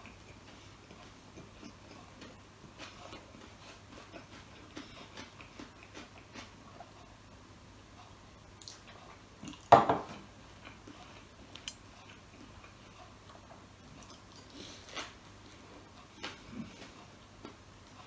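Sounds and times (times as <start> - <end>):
soft eating sounds: 0.0 - 18.0
glass knocking on table: 9.7 - 10.1.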